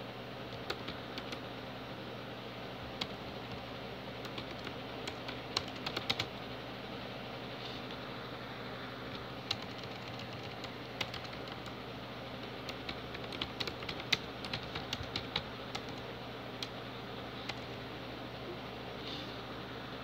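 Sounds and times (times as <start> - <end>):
keyboard typing: 0.5 - 1.4, 4.2 - 6.3, 9.1 - 11.8, 12.4 - 16.7, 17.4 - 17.8.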